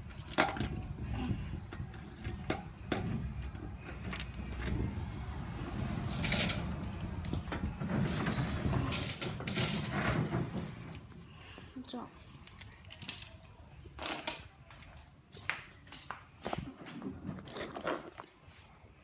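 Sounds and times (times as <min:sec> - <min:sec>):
metal roller door rattling: 0:00.0 - 0:11.0.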